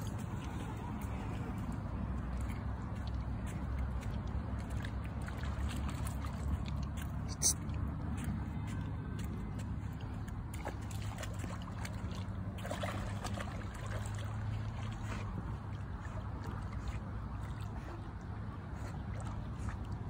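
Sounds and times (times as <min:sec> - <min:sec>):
dog splashing in water: 0:02.3 - 0:08.2, 0:09.6 - 0:20.0.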